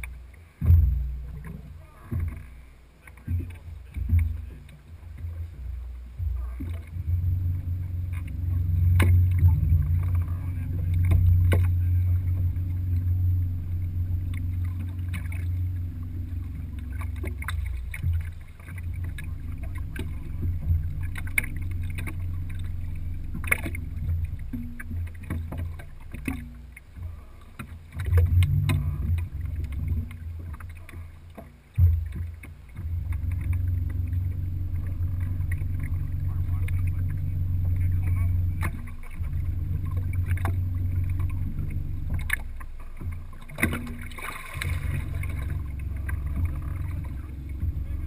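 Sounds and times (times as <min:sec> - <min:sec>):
boat engine rumble: 0:00.0 - 0:48.0.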